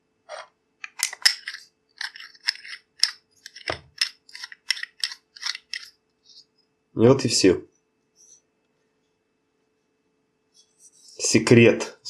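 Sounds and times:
metal threads clicking and scraping: 0.3 - 6.4.

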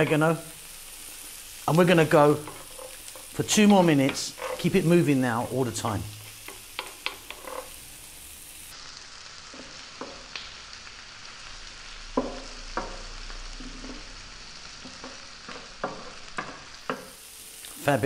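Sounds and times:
vegetables sizzling in oil: 0.0 - 18.0
wooden spoon scraping a pan: 1.8 - 5.2, 6.2 - 7.8, 12.2 - 14.2.

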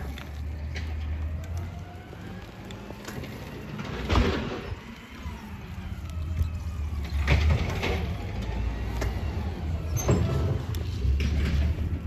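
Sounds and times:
low rumble of road traffic: 0.0 - 12.0.

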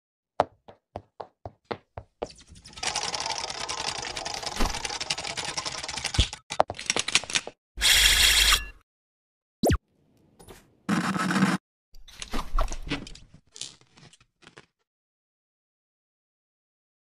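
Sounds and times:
fast typing-like clatter: 2.6 - 7.5.

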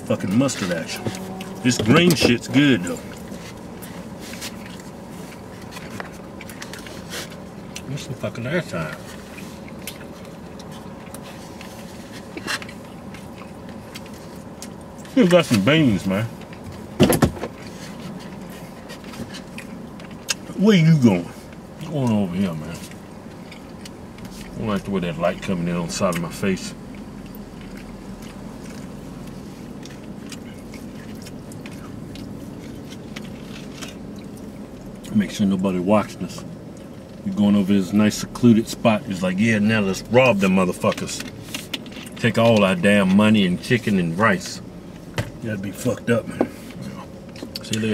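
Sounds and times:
faint car cabin hum: 0.0 - 47.9
person chewing: 0.3 - 7.9, 8.9 - 15.2, 17.5 - 20.5, 22.8 - 24.9, 26.0 - 35.1.

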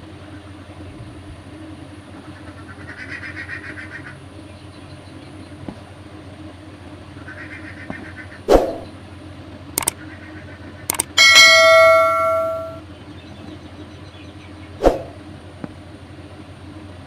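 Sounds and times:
mouse clicks: 10.9 - 11.1
bell notification chime: 11.2 - 12.8.

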